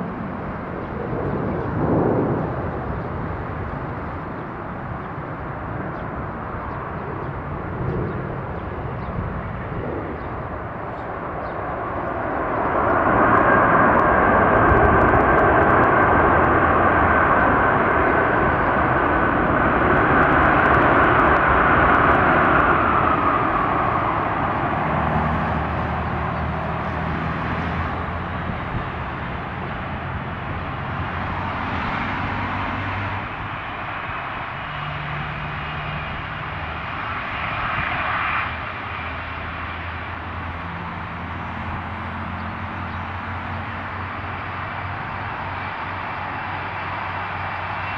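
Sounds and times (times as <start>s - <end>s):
jet engines roaring: 0.0s - 47.9s.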